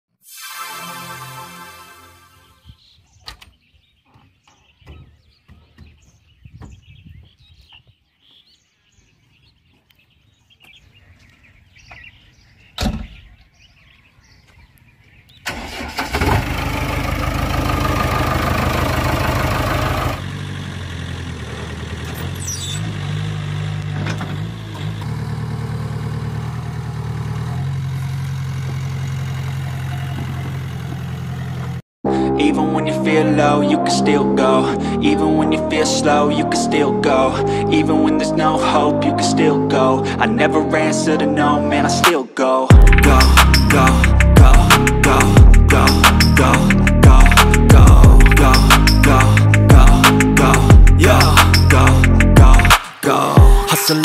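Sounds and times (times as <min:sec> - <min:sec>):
diesel engine starting and idling: 0:15.4 - 0:31.8, 0:42.7 - 0:52.8.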